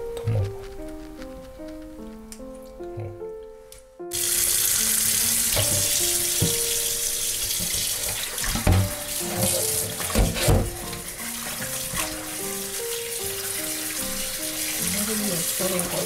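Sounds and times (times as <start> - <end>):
tap water running into bowl: 4.1 - 16.0.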